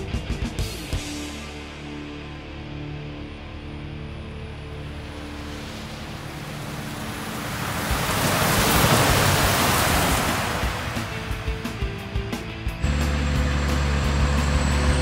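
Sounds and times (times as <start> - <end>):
truck driving past on wet road: 4.4 - 15.0.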